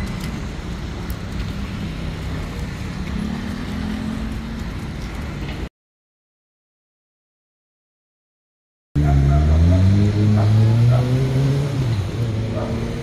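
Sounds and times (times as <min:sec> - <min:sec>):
city street traffic rumble: 0:00.0 - 0:05.7, 0:09.0 - 0:13.0.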